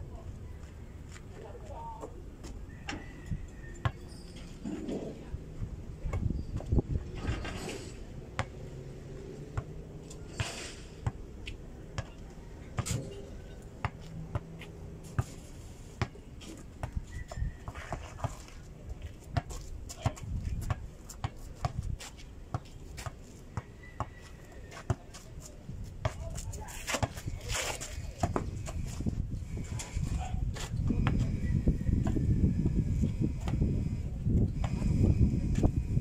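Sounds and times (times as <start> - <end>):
basketball bouncing on dirt: 13.8 - 15.3, 28.1 - 29.1, 30.7 - 33.8, 34.6 - 35.7.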